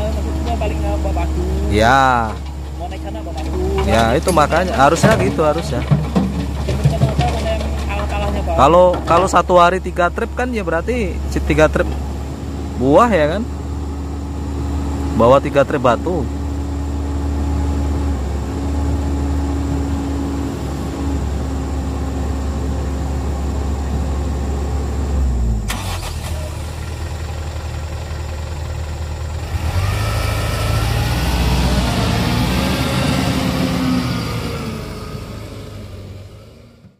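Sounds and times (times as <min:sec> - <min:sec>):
diesel engines running: 0:00.0 - 0:36.9
engine revving up: 0:29.4 - 0:36.8.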